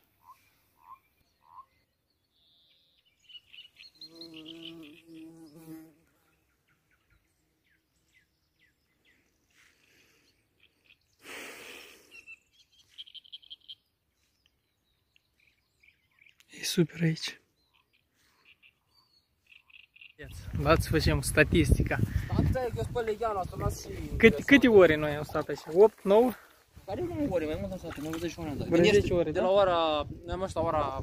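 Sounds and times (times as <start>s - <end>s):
small bird chirps: 0.2s - 11.2s, 12.0s - 16.6s, 17.4s - 20.4s
flying insect buzzing: 4.0s - 6.4s.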